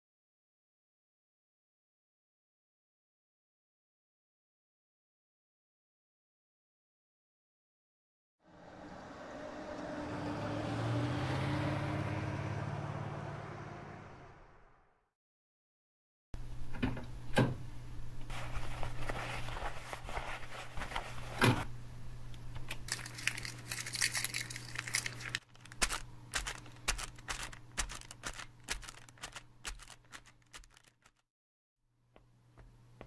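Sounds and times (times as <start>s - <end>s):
film surface crackling and clicks: 22.7s - 31.2s.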